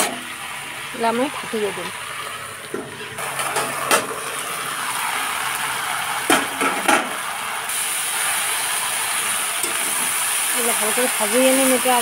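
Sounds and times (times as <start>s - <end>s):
vegetables sizzling in oil: 0.0s - 12.0s
steamy hiss: 4.1s - 12.0s.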